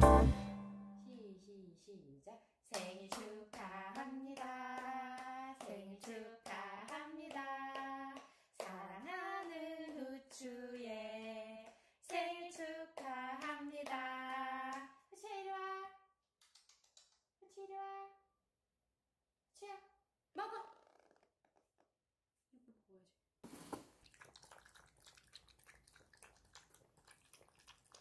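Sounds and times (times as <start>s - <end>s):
person singing: 0.0s - 0.6s
hand claps: 16.4s - 17.2s.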